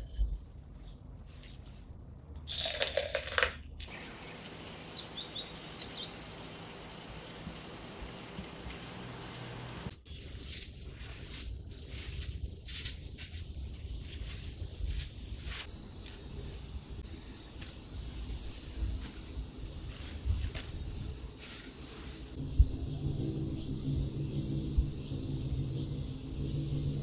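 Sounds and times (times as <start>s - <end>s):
insects chirring: 0.0s - 27.0s.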